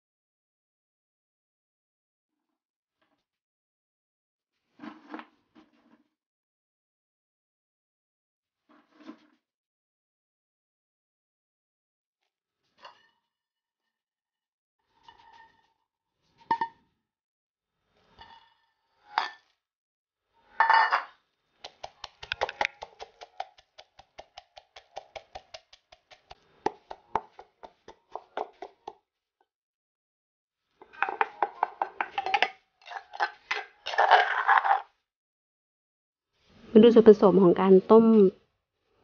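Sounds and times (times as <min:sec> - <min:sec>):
metal spoon scraping mortar: 0:21.0 - 0:28.9, 0:30.8 - 0:34.9
ingredients knocking into mortar: 0:21.6 - 0:29.0
wooden pestle pounding: 0:21.6 - 0:29.0.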